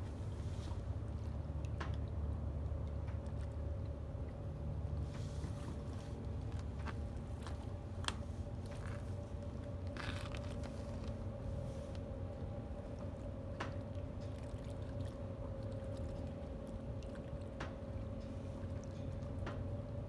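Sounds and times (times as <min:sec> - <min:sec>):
soft water splashes: 0:11.6 - 0:20.0.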